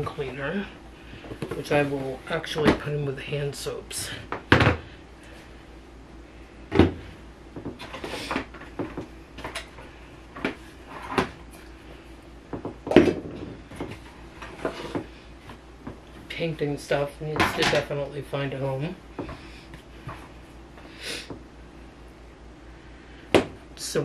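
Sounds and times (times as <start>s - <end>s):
knocks against wooden cabinet: 6.7s - 7.0s.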